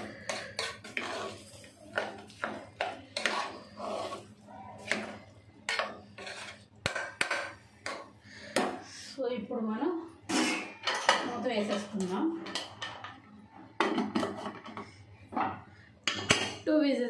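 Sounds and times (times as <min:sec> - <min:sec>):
metal ladle scraping pot: 0:00.0 - 0:08.0, 0:10.3 - 0:11.9.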